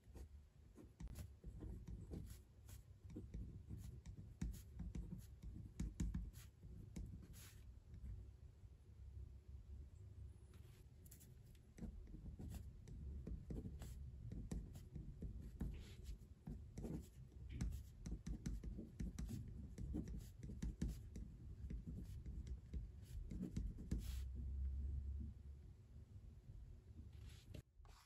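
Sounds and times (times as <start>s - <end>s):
pen scratching on paper: 0.8s - 7.6s, 11.1s - 24.3s.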